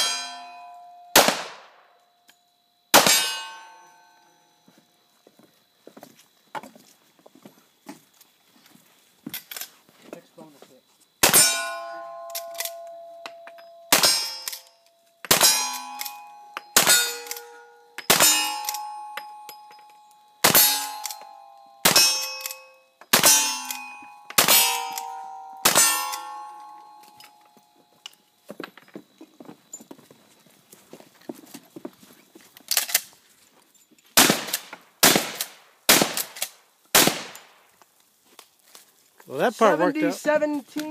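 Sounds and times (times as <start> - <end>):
steel target ringing: 0.0 - 1.3, 3.0 - 4.2, 11.2 - 19.8, 20.4 - 27.3
rifle shots: 1.2 - 1.8, 3.0 - 3.6, 11.2 - 11.8, 13.9 - 14.6, 15.3 - 16.2, 16.8 - 18.9, 20.4 - 21.2, 21.8 - 26.3, 34.2 - 37.6
shotgun shot: 1.2 - 1.8, 3.0 - 3.5, 11.2 - 11.6, 13.9 - 14.5, 15.3 - 15.8, 20.4 - 21.0, 24.4 - 26.2, 34.2 - 37.6.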